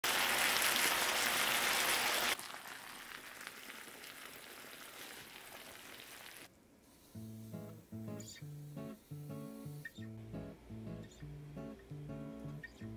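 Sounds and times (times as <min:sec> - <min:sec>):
meat sizzling in a pan: 0:00.0 - 0:06.5.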